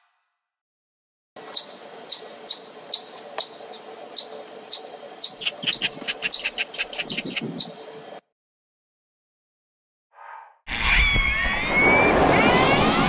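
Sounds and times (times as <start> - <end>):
insect chirping: 1.4 - 8.2.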